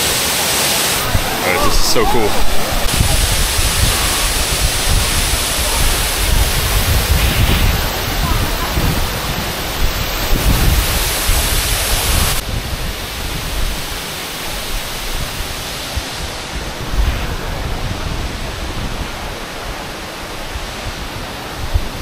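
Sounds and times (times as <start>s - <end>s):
waterfall rushing: 0.0s - 21.6s
wind buffeting microphone: 1.0s - 14.0s.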